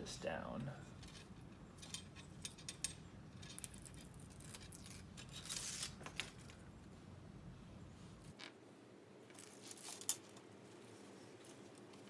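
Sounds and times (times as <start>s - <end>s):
scratchy rustling of tape: 0.8s - 6.6s, 9.2s - 12.0s.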